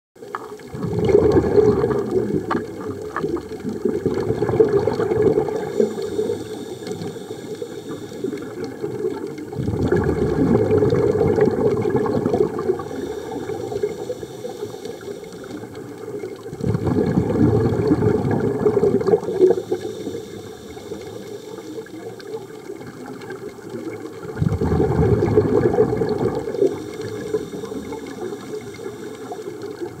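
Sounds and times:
exhaled bubbles rumbling underwater: 0:00.2 - 0:30.0
regulator inhalation hiss: 0:05.4 - 0:08.9, 0:12.6 - 0:15.9, 0:19.1 - 0:22.6, 0:26.4 - 0:29.9.

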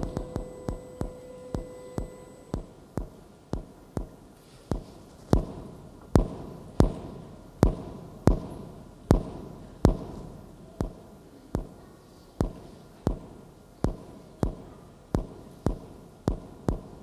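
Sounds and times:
heavy thuds ringing in hall: 0:00.0 - 0:02.8.

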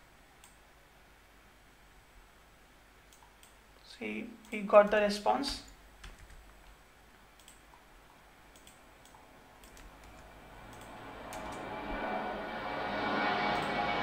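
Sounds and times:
rushing background noise: 0:06.0 - 0:14.0.

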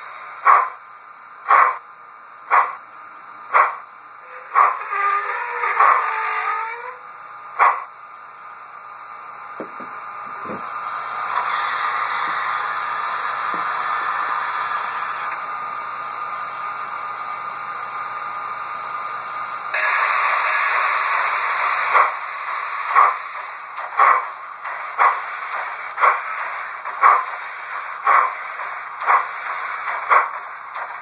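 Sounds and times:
model locomotive steam hiss: 0:10.4 - 0:31.0.

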